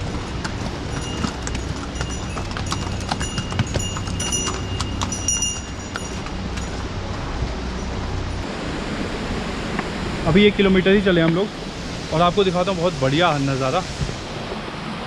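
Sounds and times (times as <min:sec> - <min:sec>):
hooves clip-clopping on stone: 0:00.0 - 0:08.0
high ringing note: 0:00.9 - 0:06.9.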